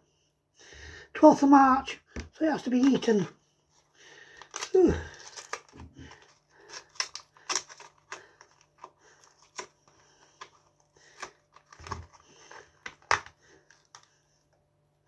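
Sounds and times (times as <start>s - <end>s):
plastic packaging crackling: 4.2s - 14.1s.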